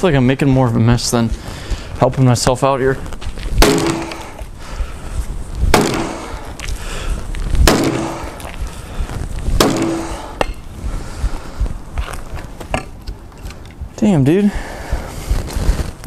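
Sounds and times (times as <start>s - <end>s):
axe chopping into log: 3.6s - 4.3s, 5.7s - 6.3s, 7.6s - 8.4s, 9.6s - 10.6s.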